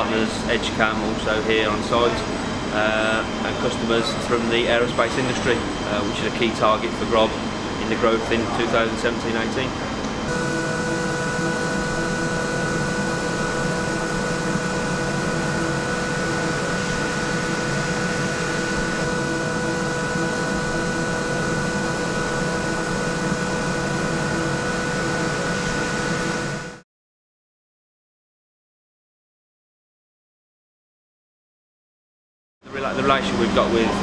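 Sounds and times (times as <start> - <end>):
milling machine whine: 0.0 - 26.8, 32.7 - 34.0.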